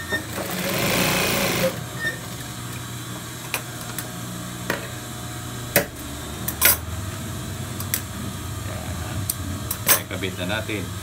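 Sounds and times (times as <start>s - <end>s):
sewing machine motor humming: 0.0s - 2.4s.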